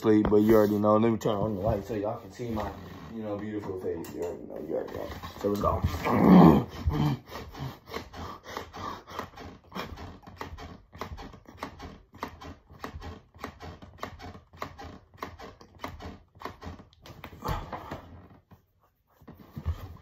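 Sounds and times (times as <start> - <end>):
person breathing hard: 6.5 - 10.1.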